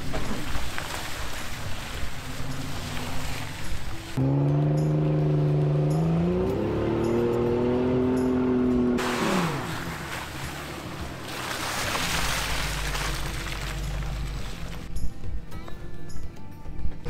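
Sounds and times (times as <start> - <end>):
tyres rushing through mud spray: 0.0 - 4.5, 7.9 - 14.9
vehicle engine revving: 2.2 - 14.9.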